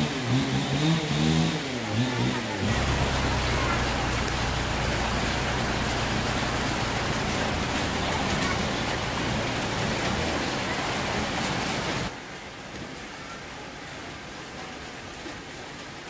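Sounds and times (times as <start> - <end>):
heavy rain hissing: 0.0 - 16.0
motorboat engine humming: 1.2 - 12.1.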